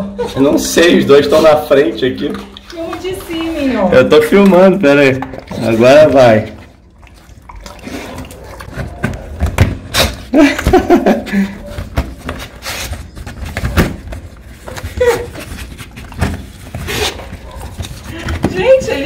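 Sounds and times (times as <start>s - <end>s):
dogs snuffling: 11.3s - 19.0s.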